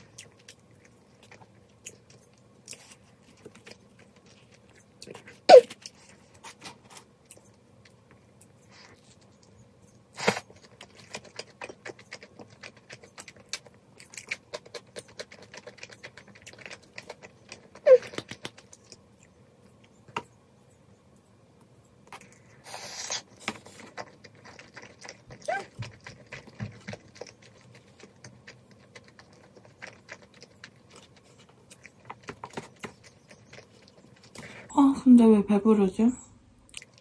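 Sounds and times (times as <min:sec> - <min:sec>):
chewing and smacking: 0:00.0 - 0:20.3, 0:22.0 - 0:34.6, 0:36.7 - 0:37.0.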